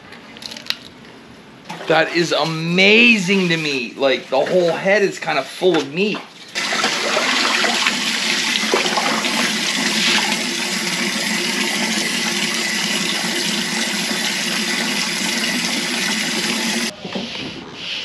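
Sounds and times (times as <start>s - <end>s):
tap water running into sink: 6.5s - 16.9s.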